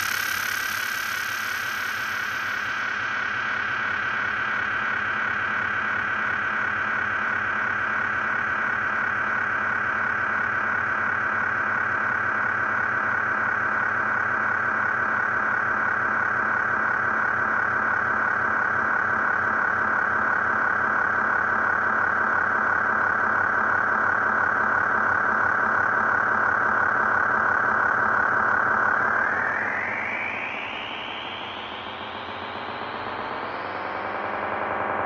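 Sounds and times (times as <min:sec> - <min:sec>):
whistle-like synth drone: 0:07.2 - 0:35.0.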